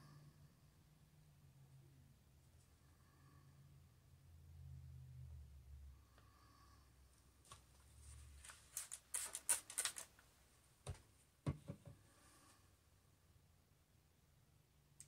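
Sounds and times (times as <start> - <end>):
soft knocks on table: 10.9 - 12.0.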